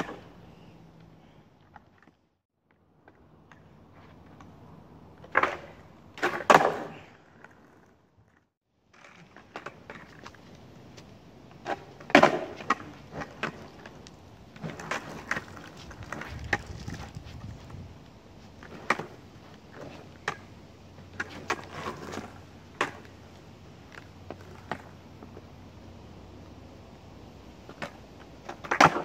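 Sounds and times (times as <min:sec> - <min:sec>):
skateboard knocking on asphalt: 0:11.6 - 0:17.8, 0:21.1 - 0:23.2.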